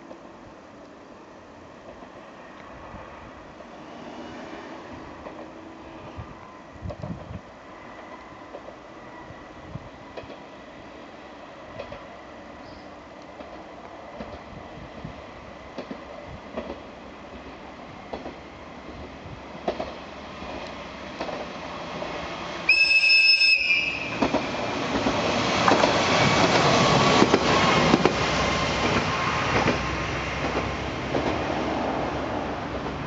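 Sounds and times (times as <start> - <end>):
diesel railcar engine: 0.1 - 33.0
train wheels on rails: 1.6 - 33.0
train horn blast: 22.7 - 24.2.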